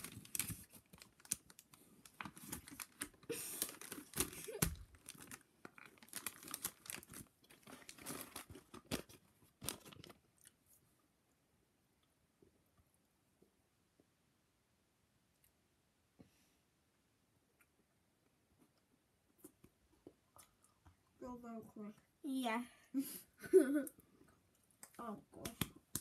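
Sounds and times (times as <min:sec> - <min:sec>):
wrapper crinkling and tearing: 0:00.0 - 0:10.5.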